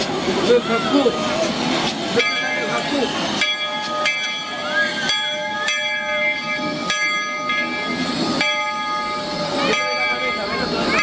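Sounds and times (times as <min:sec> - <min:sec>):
steam locomotive bell ringing: 0:00.0 - 0:11.0.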